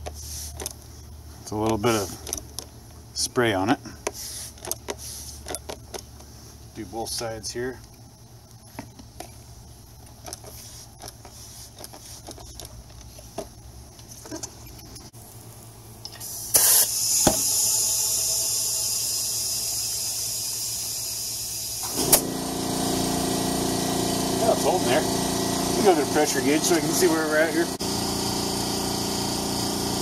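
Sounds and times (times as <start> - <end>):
compressed air hissing into tyre: 0.0 - 0.8, 3.9 - 6.6, 10.3 - 13.4, 16.1 - 30.0
air compressor motor humming: 3.8 - 7.7, 16.1 - 30.0
handling taps and clicks: 3.9 - 6.3, 7.8 - 15.1.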